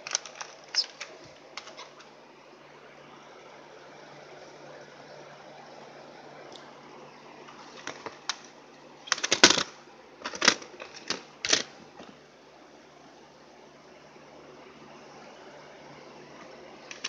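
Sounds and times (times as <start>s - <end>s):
plastic cd case clicking: 0.0s - 1.8s.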